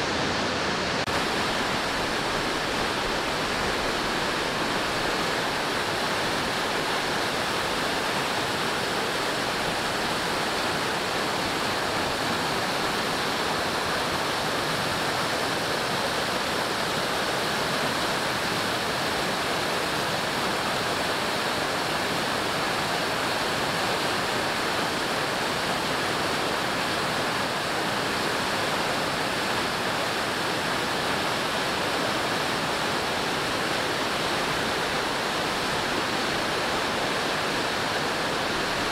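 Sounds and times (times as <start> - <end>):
rushing water: 0.0 - 38.9.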